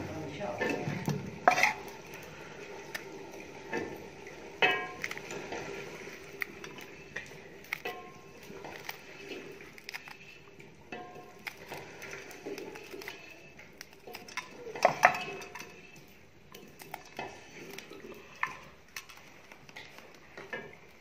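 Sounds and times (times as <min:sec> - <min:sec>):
knife scraping steel plate: 0:01.4 - 0:02.0.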